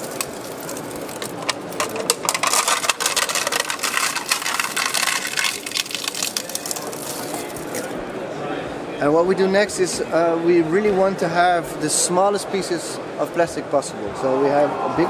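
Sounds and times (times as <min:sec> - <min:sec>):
plastic shredder crunching plastic: 0:00.0 - 0:08.0.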